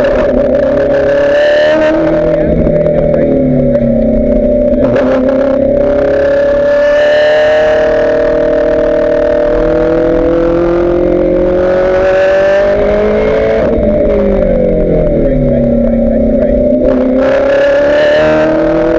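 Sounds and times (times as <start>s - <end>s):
race car engine accelerating: 0.0s - 18.9s.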